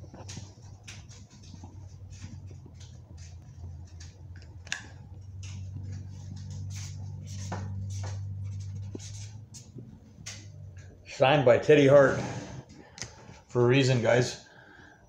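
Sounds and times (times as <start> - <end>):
handling rustles and taps: 0.0 - 11.0.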